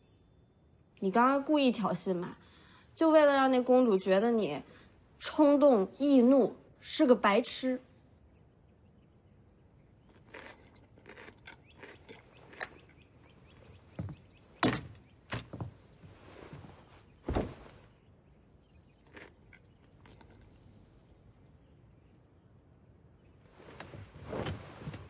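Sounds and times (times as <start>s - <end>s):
heavy thuds: 17.2s - 17.8s.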